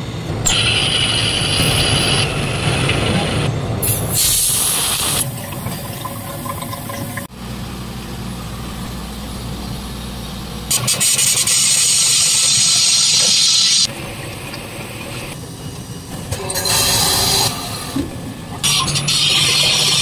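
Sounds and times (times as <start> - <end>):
low machine hum: 5.2 - 10.7.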